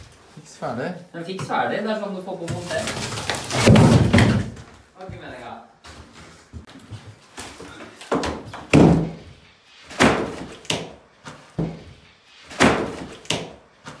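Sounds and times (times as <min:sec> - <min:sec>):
heavy knocks and thuds: 0:03.6 - 0:04.7, 0:08.1 - 0:09.3, 0:11.6 - 0:12.0.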